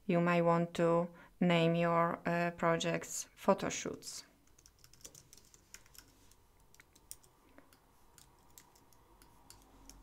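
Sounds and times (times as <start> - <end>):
faint keyboard typing: 3.8 - 10.0.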